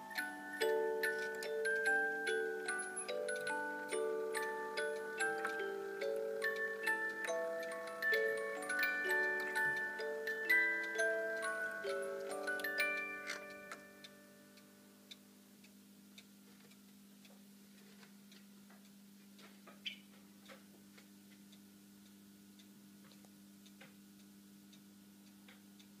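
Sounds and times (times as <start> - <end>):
clocks ticking: 0.0 - 16.3
faint steady hum: 0.0 - 26.0.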